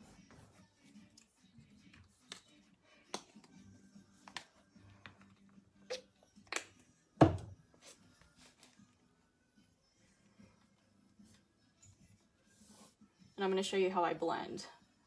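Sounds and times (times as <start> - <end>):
faint background music: 0.0 - 15.0.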